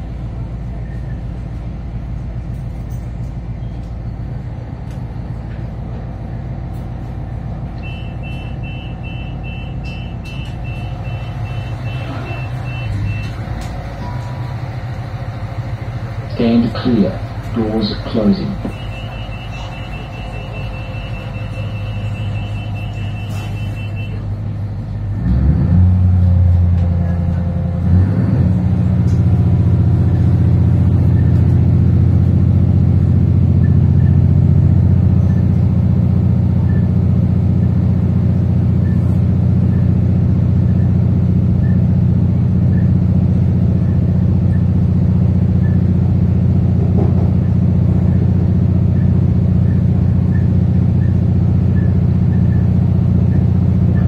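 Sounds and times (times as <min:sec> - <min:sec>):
train engine droning: 0:00.0 - 0:54.0.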